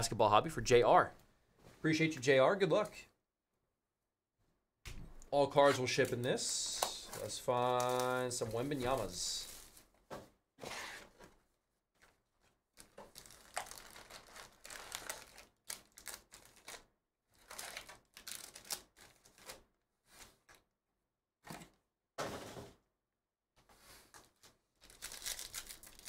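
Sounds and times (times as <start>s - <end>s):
foil packs crinkling: 5.8s - 9.9s, 12.8s - 19.6s, 24.8s - 26.0s.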